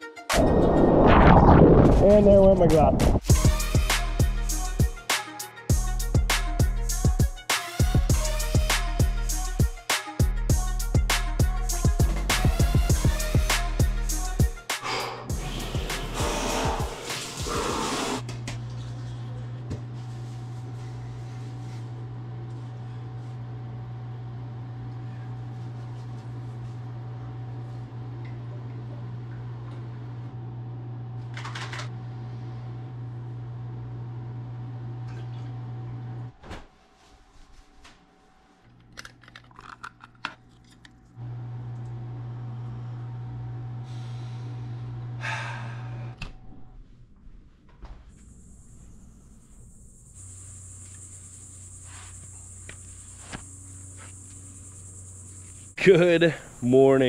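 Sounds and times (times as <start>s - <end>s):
low electric hum: 18.2s - 36.4s, 38.2s - 57.0s.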